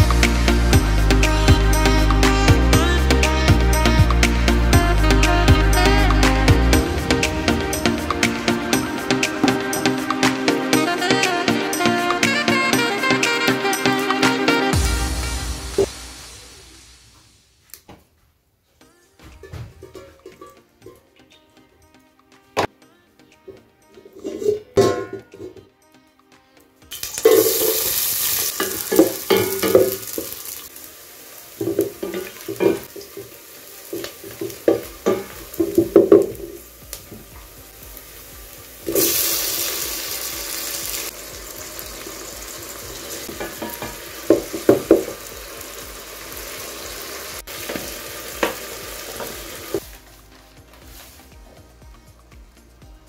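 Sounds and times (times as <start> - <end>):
onions sizzling in hot oil: 26.9 - 50.1, 50.9 - 51.3.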